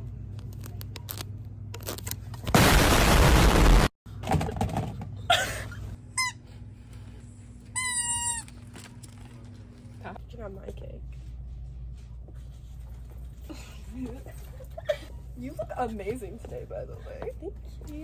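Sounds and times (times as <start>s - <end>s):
loud explosion blast: 2.6s - 3.9s.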